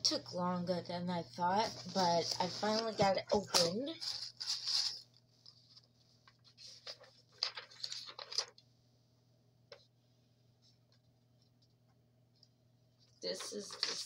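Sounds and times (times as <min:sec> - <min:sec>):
paper rustling: 0:01.6 - 0:08.6, 0:13.3 - 0:14.0.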